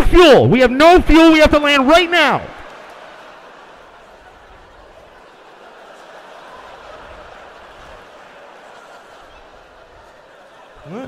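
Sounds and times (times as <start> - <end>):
audience murmur: 2.4 - 11.0.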